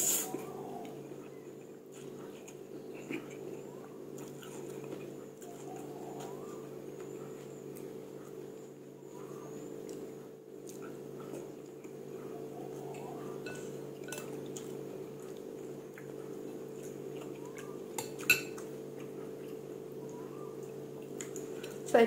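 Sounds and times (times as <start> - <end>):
utensils clinking in ceramic bowl: 13.4 - 14.7, 18.0 - 18.6.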